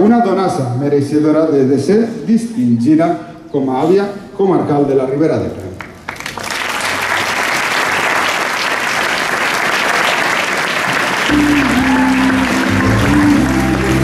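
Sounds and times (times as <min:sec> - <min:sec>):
audience applauding: 0:05.8 - 0:14.0
music with low held notes and bass: 0:11.3 - 0:14.0.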